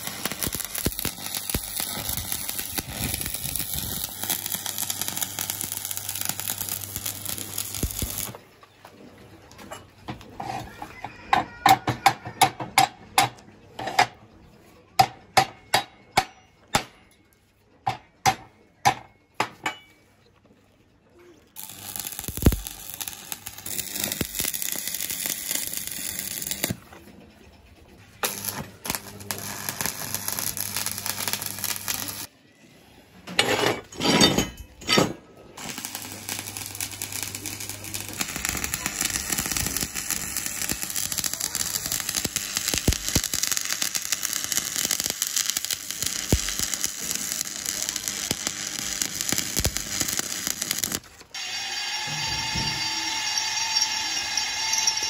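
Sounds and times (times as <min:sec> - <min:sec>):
welding arc crackling and sizzling: 0:00.0 - 0:08.4, 0:21.6 - 0:26.8, 0:28.2 - 0:32.3, 0:35.6 - 0:55.0
electric drill drilling into steel: 0:21.6 - 0:26.8, 0:35.6 - 0:55.0.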